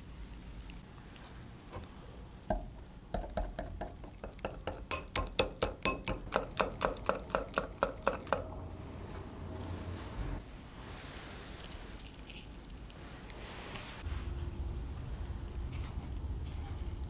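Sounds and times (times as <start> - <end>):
whisk clinking against glass bowl: 2.5 - 8.5.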